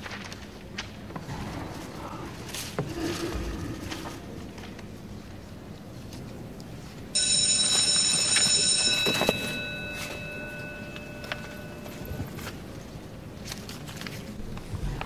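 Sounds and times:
school bell ringing: 7.2 - 12.8.

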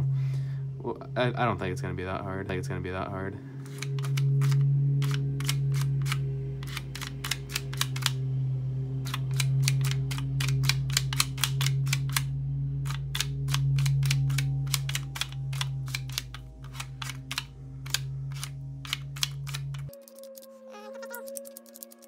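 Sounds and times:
steady low hum: 0.0 - 21.4.

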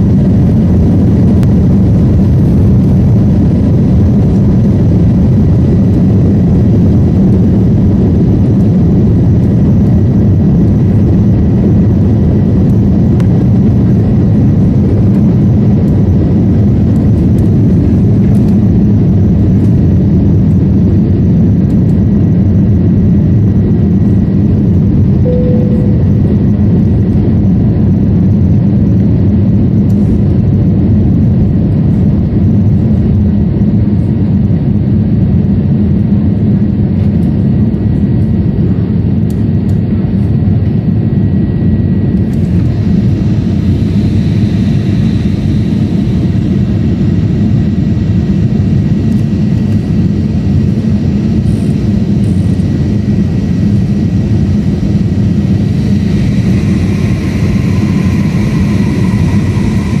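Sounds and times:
faint steady whine: 0.0 - 60.0
jet engine roar in cabin: 0.0 - 60.0.

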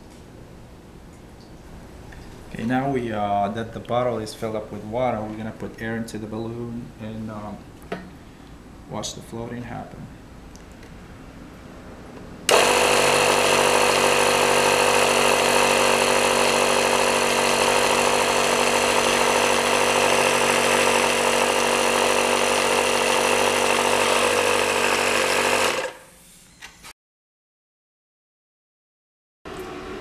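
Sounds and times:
air compressor running: 12.5 - 26.1.

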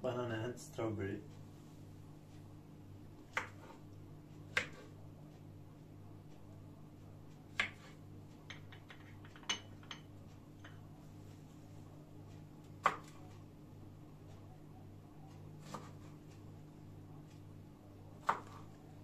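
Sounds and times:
steady low hum: 0.0 - 19.0
knife slicing banana: 4.5 - 5.0, 15.6 - 16.2, 18.2 - 18.8
knife tapping cutting board: 8.5 - 10.0.

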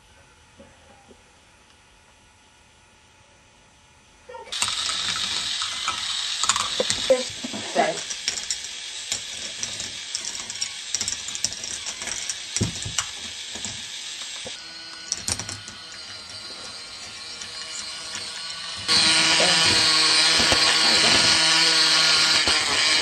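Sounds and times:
plastic balls clattering on track: 4.5 - 23.0
steady hiss: 4.6 - 23.0.

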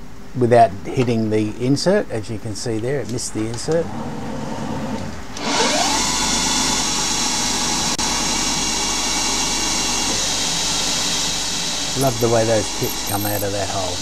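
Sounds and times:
lathe spindle spinning: 5.4 - 14.0
loud steady hiss: 6.8 - 14.0.

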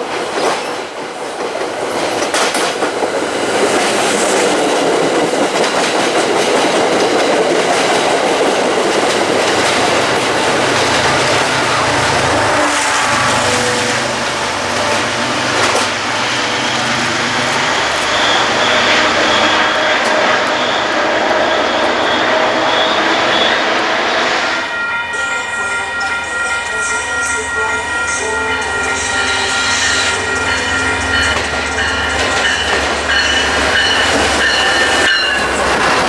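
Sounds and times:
clickety-clack over rail joints: 0.0 - 12.8, 14.7 - 23.8, 29.7 - 36.0
train wheels rolling on rails: 0.0 - 36.0
diesel locomotive rumble: 3.2 - 24.4.

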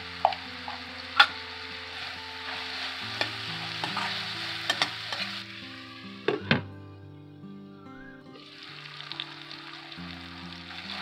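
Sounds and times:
vegetables sizzling in a pan: 0.0 - 6.6, 8.4 - 11.0
metal spatula clicking on pan: 0.2 - 1.4, 3.2 - 5.3.

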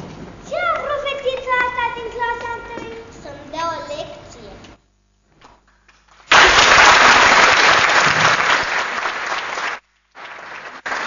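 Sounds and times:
audience applause: 6.2 - 11.0.

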